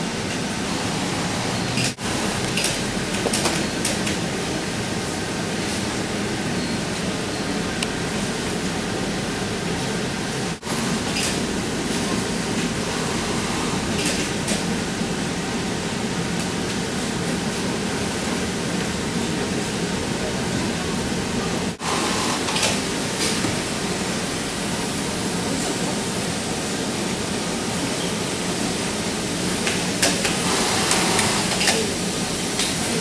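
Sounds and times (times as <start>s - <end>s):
sewing machines running: 0.4s - 4.1s, 10.6s - 14.7s, 21.8s - 25.4s, 28.3s - 32.3s.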